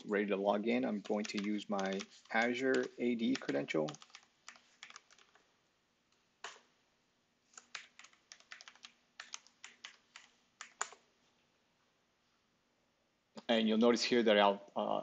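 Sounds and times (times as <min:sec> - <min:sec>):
faint keyboard keystrokes: 0:01.0 - 0:05.4.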